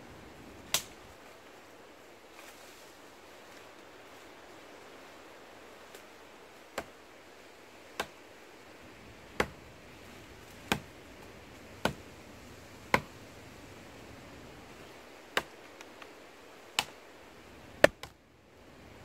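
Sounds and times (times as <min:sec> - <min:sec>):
blade chopping into wood: 0:09.4 - 0:09.6, 0:10.7 - 0:10.9, 0:12.9 - 0:13.1.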